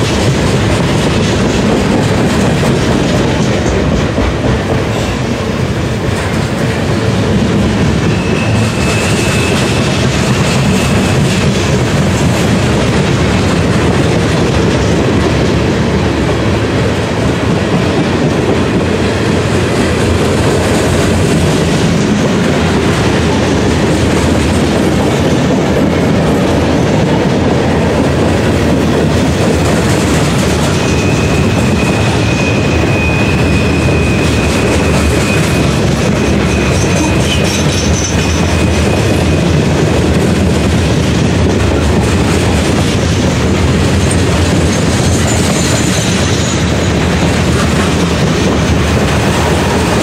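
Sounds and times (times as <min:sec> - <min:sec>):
train wheels rolling on rails: 0:00.0 - 0:50.0
wheels clickety-clack on rail joints: 0:00.0 - 0:50.0
faint high wheel squeal: 0:08.0 - 0:11.3, 0:30.7 - 0:39.6.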